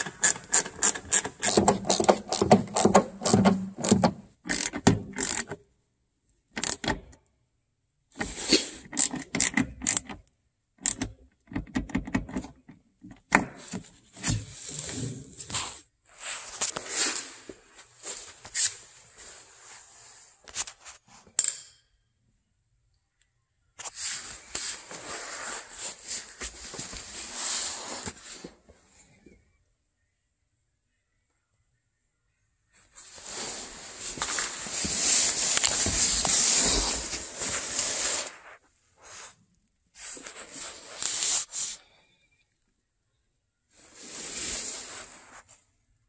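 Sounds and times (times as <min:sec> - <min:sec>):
socket ratchet clicking: 0:00.0 - 0:05.5, 0:06.6 - 0:07.0
rustling handling noise: 0:33.0 - 0:39.4.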